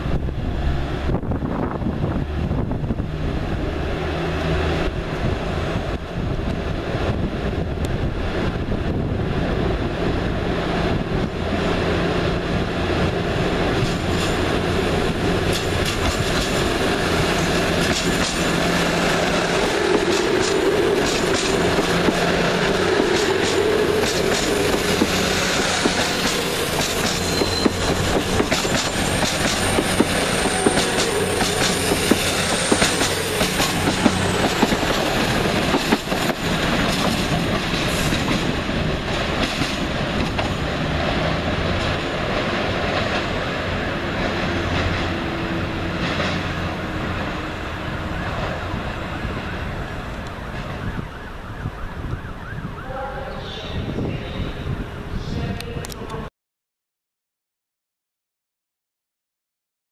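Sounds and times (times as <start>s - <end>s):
diesel train engines: 0.0s - 56.3s
wheels clicking over rail joints: 13.8s - 43.4s
high wheel squeal: 23.3s - 35.2s.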